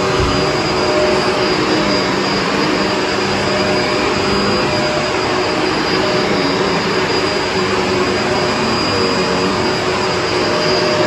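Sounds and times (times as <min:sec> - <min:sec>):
vacuum cleaner on carpet: 0:00.0 - 0:11.0.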